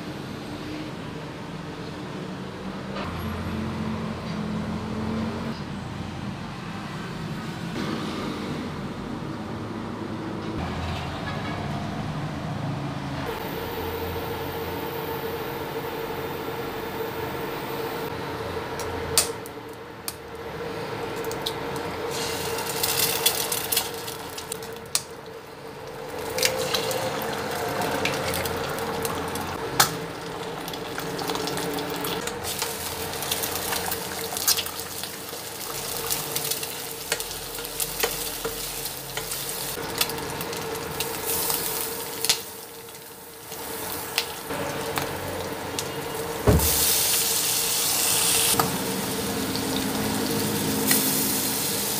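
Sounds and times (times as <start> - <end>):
egg sizzling in oil: 22.0 - 51.9.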